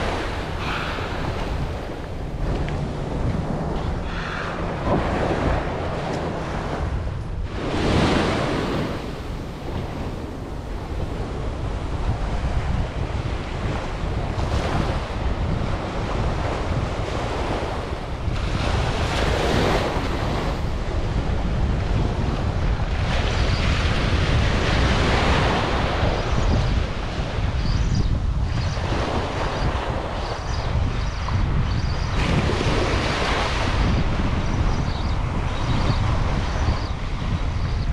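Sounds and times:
small ocean waves washing on sand: 0.0 - 27.5
wind buffeting microphone: 0.0 - 37.9.

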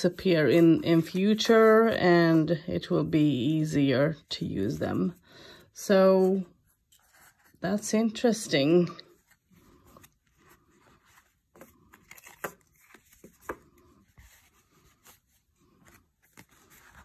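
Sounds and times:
playing cards being handled: 9.1 - 17.0.

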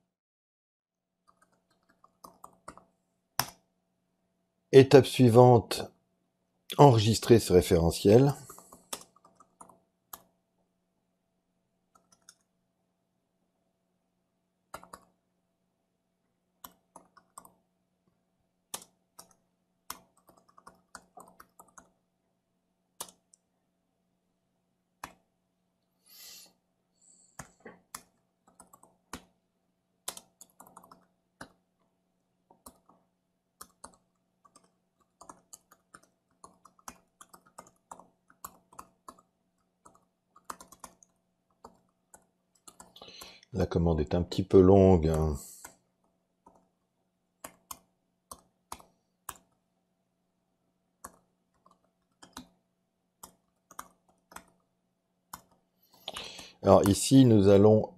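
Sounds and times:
keyboard typing: 1.2 - 3.6, 8.4 - 10.3, 11.9 - 12.5, 14.7 - 15.2, 16.6 - 17.6, 18.7 - 22.0, 23.0 - 23.4, 27.4 - 29.4, 30.0 - 31.6, 32.5 - 43.4, 46.4 - 46.8, 47.4 - 49.6, 51.0 - 52.6, 53.2 - 54.7, 55.3 - 57.0.

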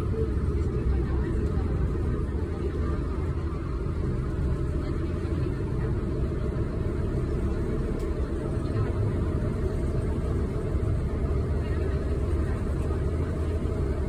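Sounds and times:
boat engine low rumble: 0.0 - 14.0.

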